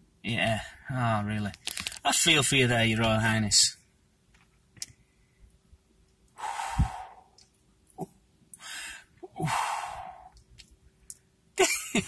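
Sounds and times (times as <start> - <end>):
man blowing out heavy breaths: 6.4 - 7.4, 8.6 - 10.4.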